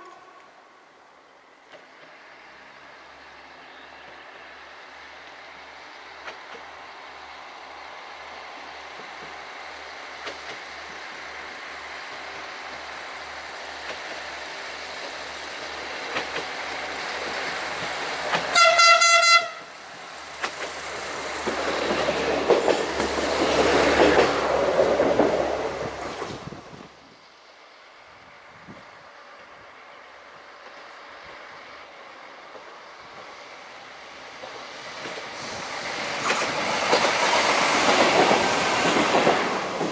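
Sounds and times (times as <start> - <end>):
train horn blast: 0.0 - 0.7, 18.5 - 19.7
diesel railcar passing: 0.0 - 39.9.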